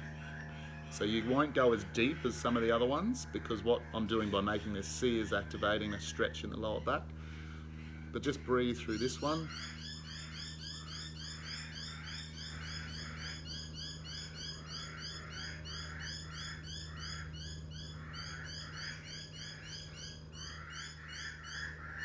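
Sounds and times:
constant low hum: 0.0s - 22.0s
rhythmic animal calls chorus: 0.0s - 22.0s.

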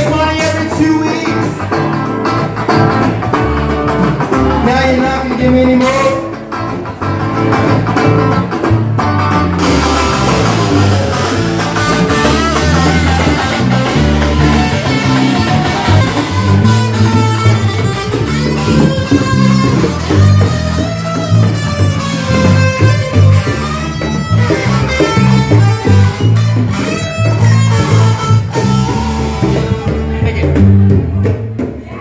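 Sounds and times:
person singing: 0.0s - 1.8s, 4.3s - 6.4s
electric guitar: 0.0s - 32.0s
stepping bass line: 0.0s - 32.0s.

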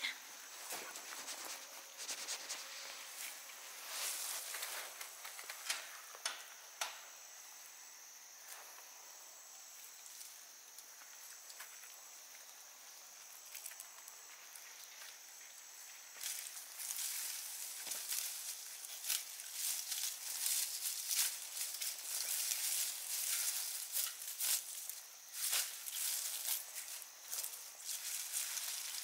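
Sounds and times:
high insect drone: 0.0s - 29.0s
leafy plants rustling and snapping: 0.5s - 7.0s, 13.2s - 29.0s.

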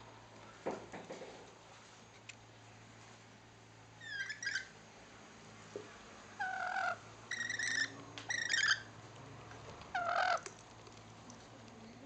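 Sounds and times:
lorikeets calling: 4.0s - 4.8s, 6.4s - 8.9s, 9.9s - 10.4s.

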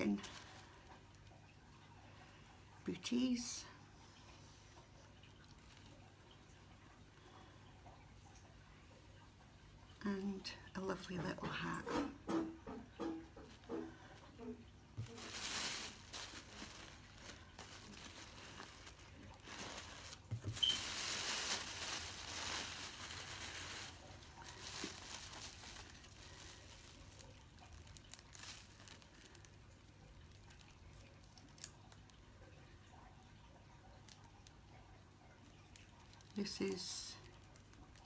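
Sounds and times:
paper and plastic crinkling: 0.0s - 1.2s, 13.4s - 32.0s.

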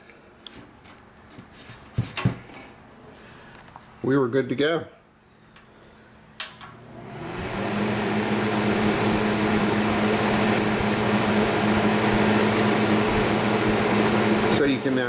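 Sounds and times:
fan motor hum and air rush: 5.6s - 15.0s
fan switch click: 6.4s - 6.8s.

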